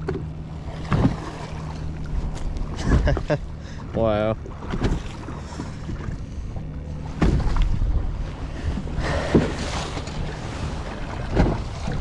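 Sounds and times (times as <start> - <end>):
knocks on boat: 0.0 - 1.3, 2.3 - 3.4, 4.5 - 6.2, 7.0 - 7.8, 9.2 - 10.2, 11.1 - 12.0
water lapping against boat hull: 0.0 - 12.0.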